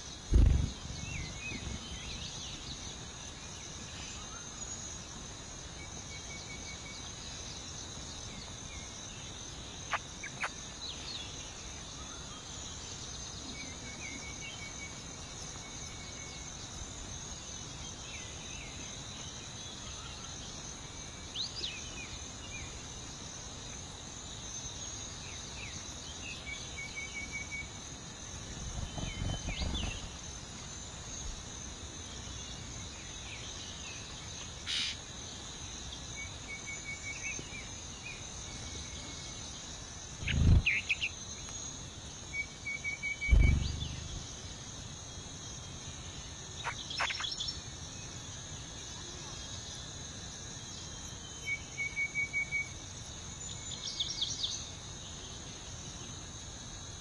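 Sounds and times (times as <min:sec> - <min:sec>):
high-pitched insect chorus: 0:00.0 - 0:57.0
low rumble: 0:40.2 - 0:40.7, 0:43.3 - 0:44.7
bird chirps and trills: 0:40.2 - 0:41.2, 0:42.4 - 0:44.6, 0:46.6 - 0:47.6.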